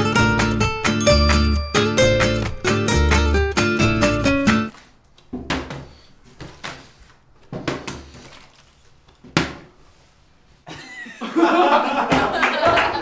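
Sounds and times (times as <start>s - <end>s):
sharp knocks and thuds: 5.3s - 6.9s.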